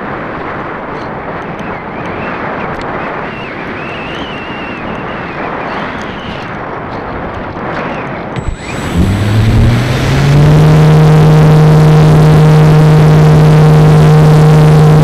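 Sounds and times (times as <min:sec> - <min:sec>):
wind buffeting microphone: 0:00.0 - 0:15.0
faint wavering high whine: 0:08.4 - 0:15.0.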